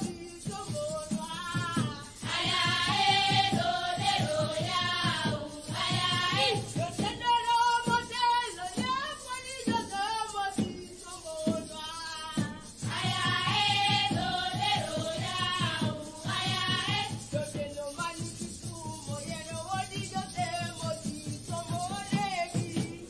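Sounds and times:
percussive beat: 0:00.0 - 0:23.0
girls singing in chorus: 0:01.2 - 0:09.8, 0:12.4 - 0:17.4.

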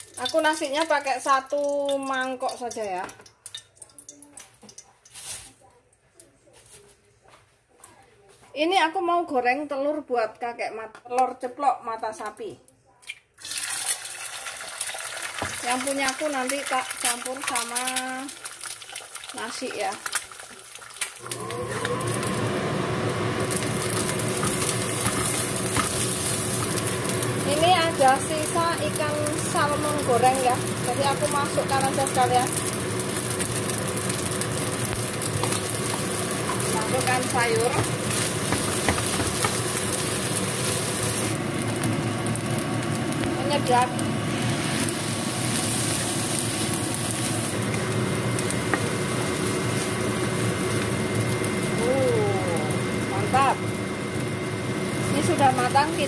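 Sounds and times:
rice sizzling in a wok: 0:00.0 - 0:03.1, 0:04.6 - 0:05.7, 0:13.4 - 0:56.0
stove rushing noise: 0:19.2 - 0:56.0
wooden spatula scraping wok: 0:23.5 - 0:28.4, 0:35.0 - 0:41.3
spatula tapping pan: 0:37.6 - 0:39.6.

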